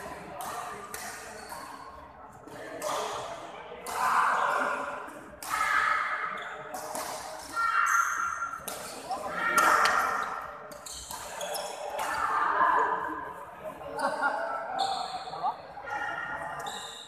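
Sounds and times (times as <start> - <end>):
sneakers squeaking on court floor: 10.2 - 12.1.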